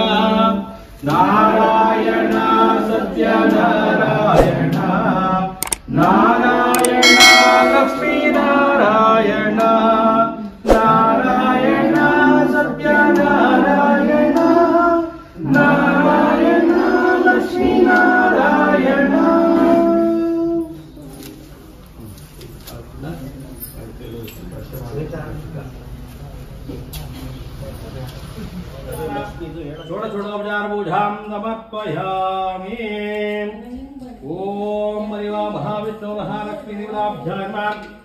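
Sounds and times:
voices singing a chant: 0:00.0 - 0:20.7.

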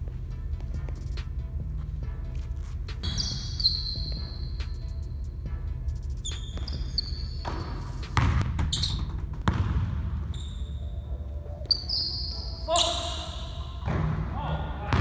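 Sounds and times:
sneakers squeaking: 0:00.1 - 0:15.0
basketball dribbling on wood floor: 0:06.5 - 0:10.0.

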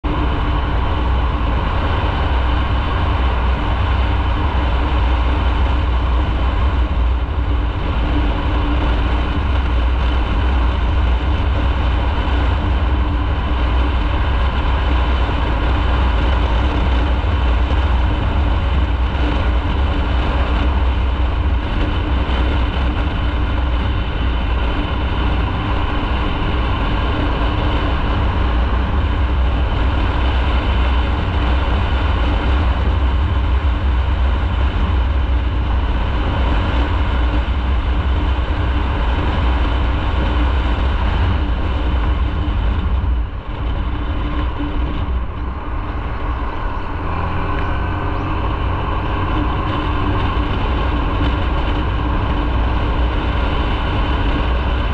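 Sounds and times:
motorcycle engine rumble: 0:00.0 - 0:54.9.

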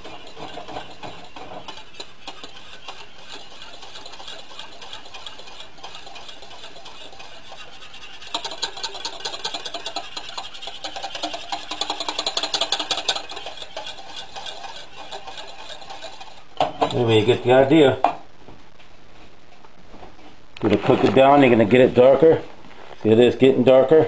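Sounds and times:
utensil clicking against saucepan: 0:08.3 - 0:13.6.

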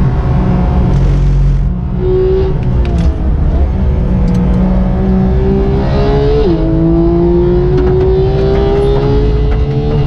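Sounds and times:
car engine accelerating hard: 0:00.0 - 0:10.0.

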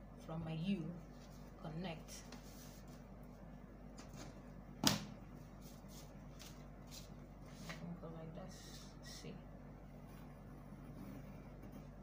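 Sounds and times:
rubbing and handling of paper: 0:00.9 - 0:03.5, 0:05.4 - 0:08.0
pencil drawing along a ruler: 0:09.9 - 0:12.0.

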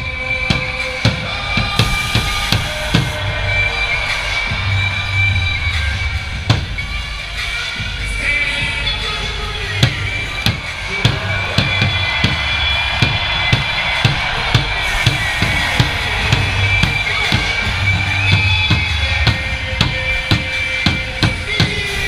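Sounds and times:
crowd noise: 0:00.0 - 0:22.0
music over pa: 0:00.0 - 0:22.0
large drum struck hard: 0:09.8 - 0:21.8.

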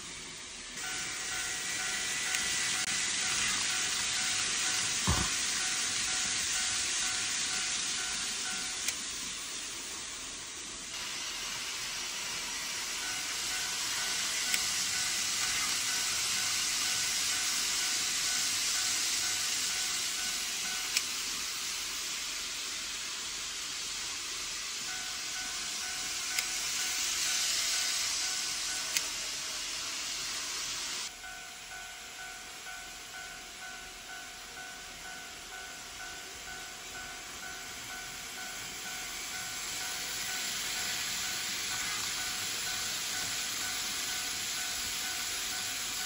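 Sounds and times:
model train wheels and motor hiss: 0:00.0 - 0:46.0.

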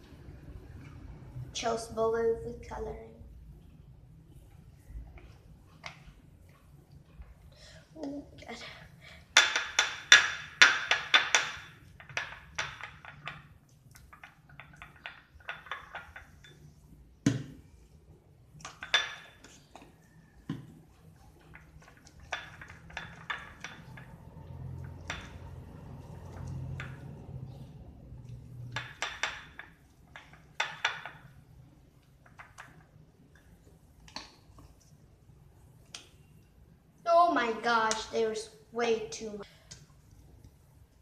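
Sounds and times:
spoon stirring slime in bowl: 0:18.6 - 0:36.4.

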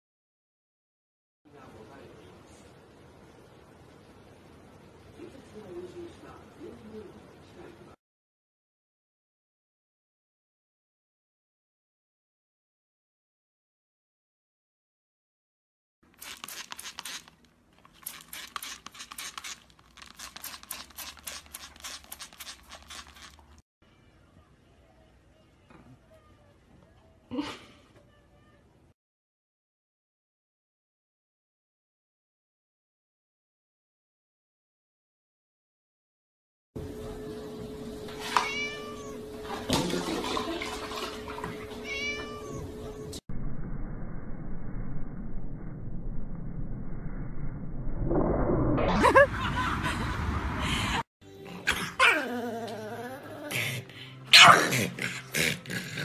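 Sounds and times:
kitten meowing: 0:38.2 - 0:39.3, 0:41.8 - 0:43.0.

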